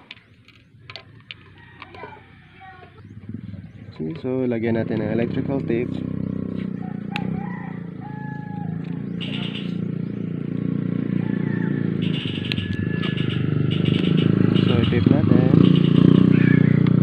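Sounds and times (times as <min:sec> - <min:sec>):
bird chirps: 0:02.4 - 0:04.6, 0:05.8 - 0:16.8.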